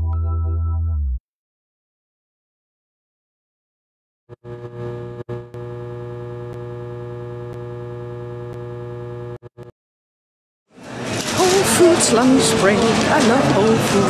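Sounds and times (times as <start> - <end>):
neon sign electrical buzz: 4.3 - 9.7.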